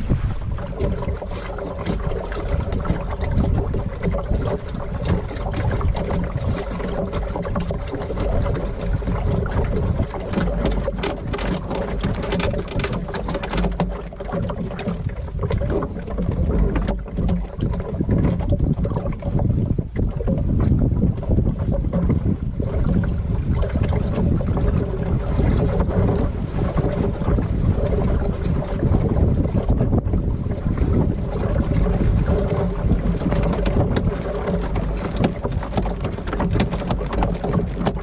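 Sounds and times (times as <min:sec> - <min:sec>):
water splashing along hull: 0:00.0 - 0:38.0
wind buffeting microphone: 0:00.0 - 0:38.0
knocks and clicks: 0:09.2 - 0:19.1, 0:31.9 - 0:38.0.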